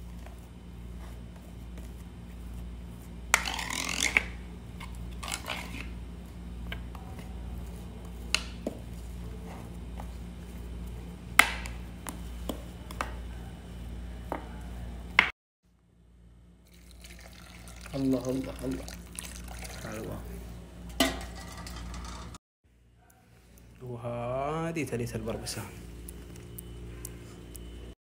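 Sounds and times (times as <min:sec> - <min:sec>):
metal spoon scraping a plate: 0:21.0 - 0:22.4.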